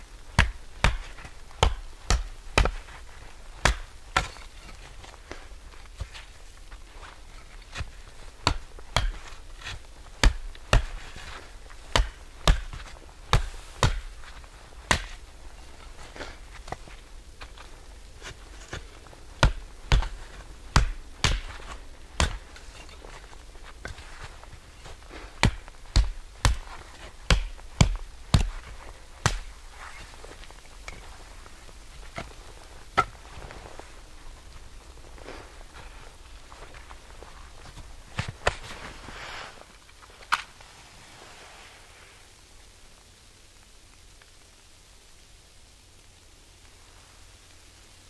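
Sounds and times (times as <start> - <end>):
wood chopping strikes: 0.3 - 2.9, 3.6 - 4.5, 7.8 - 14.2, 14.9 - 15.2, 18.2 - 23.2, 24.9 - 29.5, 33.0 - 33.2.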